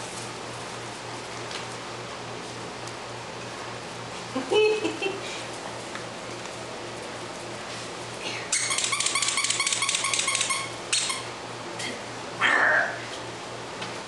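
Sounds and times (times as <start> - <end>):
squeaky toy squeaks: 8.6 - 11.2
puppy yelp: 8.6 - 11.3.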